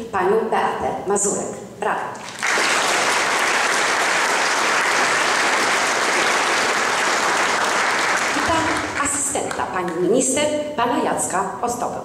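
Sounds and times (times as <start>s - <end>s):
audience applause: 2.2s - 9.1s.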